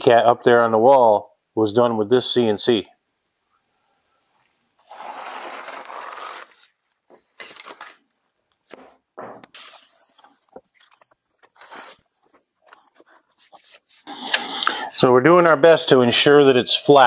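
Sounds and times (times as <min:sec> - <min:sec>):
paper crinkling and scraping: 0:04.9 - 0:08.0, 0:09.5 - 0:14.2.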